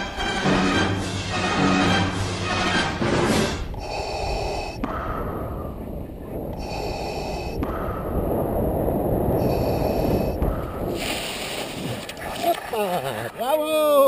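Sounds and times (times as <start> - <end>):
wind buffeting microphone: 3.4 - 12.7.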